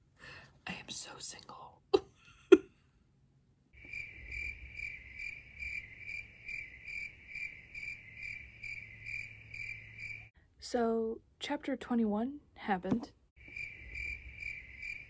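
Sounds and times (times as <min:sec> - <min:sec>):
cricket chirping: 0:03.8 - 0:10.3, 0:13.4 - 0:15.0.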